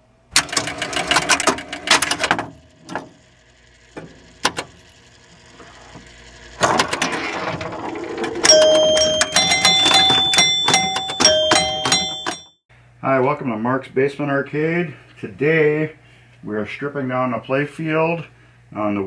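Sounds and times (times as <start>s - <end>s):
pinball machine relays clattering: 0.4s - 3.2s, 6.6s - 12.6s
bell-toned jingle: 8.4s - 12.6s.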